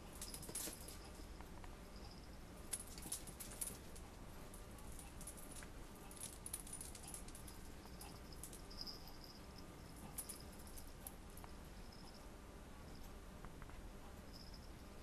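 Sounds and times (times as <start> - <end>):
pet collar jingling: 0.0 - 1.4, 2.0 - 4.1, 4.8 - 12.2.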